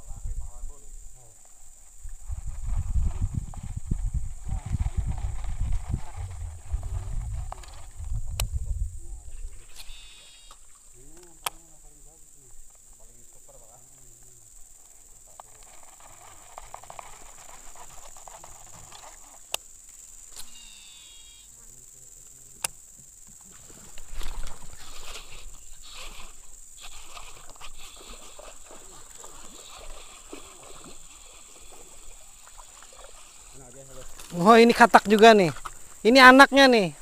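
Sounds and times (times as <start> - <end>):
insects droning: 0.0 - 37.0
handling rustle: 14.0 - 20.5, 23.3 - 36.0.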